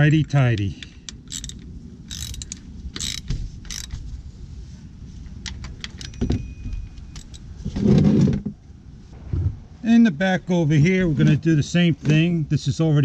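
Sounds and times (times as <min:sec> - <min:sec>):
ratchet clicking: 0:00.1 - 0:04.0
muffled rustle: 0:02.7 - 0:09.9, 0:10.9 - 0:12.5
light metal clinks: 0:05.8 - 0:07.6.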